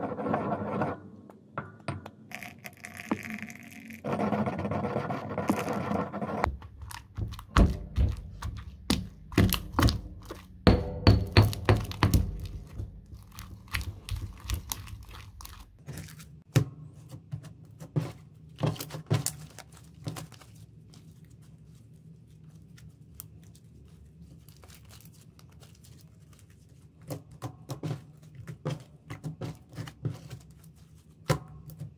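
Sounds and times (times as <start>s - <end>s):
stone pestle knocking in mortar: 6.5s - 13.1s.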